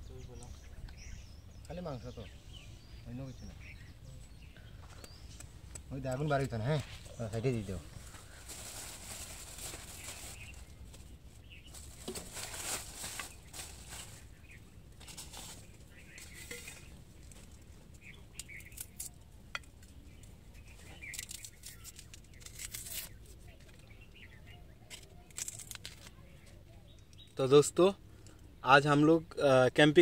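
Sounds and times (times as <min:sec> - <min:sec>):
plastic bag rustling and crinkling: 0:06.6 - 0:18.0, 0:24.8 - 0:26.5.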